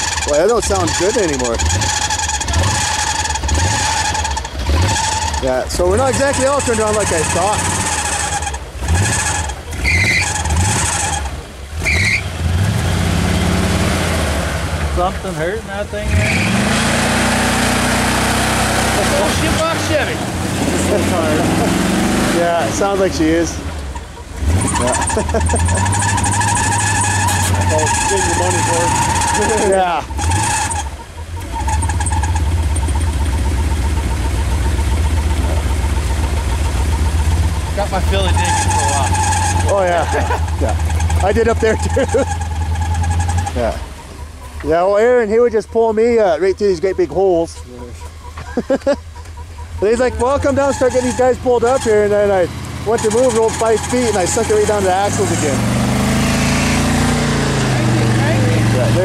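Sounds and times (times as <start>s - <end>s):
short high squeal: 0.0s - 5.5s, 6.3s - 12.3s, 24.6s - 33.6s, 38.1s - 44.5s
pickup engine revving: 0.0s - 59.0s
tires spinning in snow: 0.0s - 59.0s.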